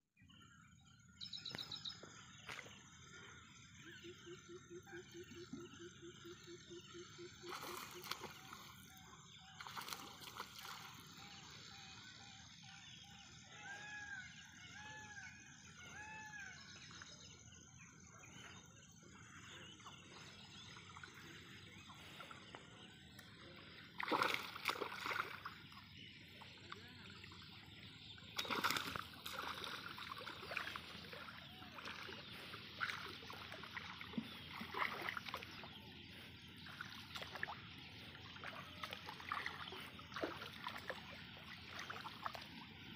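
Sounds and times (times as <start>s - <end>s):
water splashing and sloshing: 7.3s - 11.6s, 18.2s - 42.9s
fish thrashing in water: 23.9s - 25.7s, 28.3s - 35.5s.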